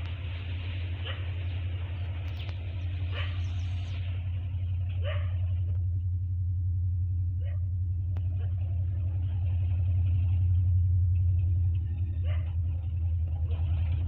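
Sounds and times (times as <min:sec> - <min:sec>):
diesel train droning: 0:00.0 - 0:14.0
dog barking: 0:01.0 - 0:01.4, 0:03.1 - 0:03.5, 0:05.0 - 0:05.5, 0:07.4 - 0:07.7, 0:12.2 - 0:12.6.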